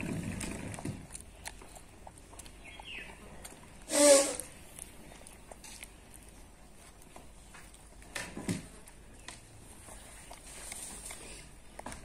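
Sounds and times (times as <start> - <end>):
monkey eating clicks: 0.3 - 3.9.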